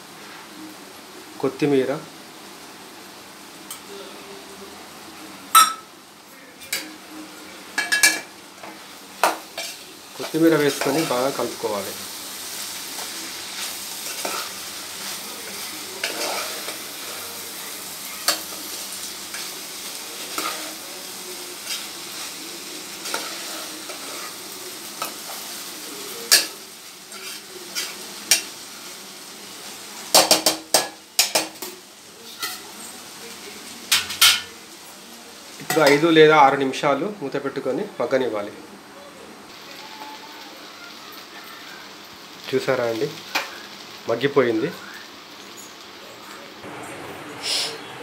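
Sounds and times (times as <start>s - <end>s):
vegetables sizzling in a pot: 0.0s - 48.0s
metal spoon scraping a pot: 16.0s - 17.2s, 27.1s - 28.4s.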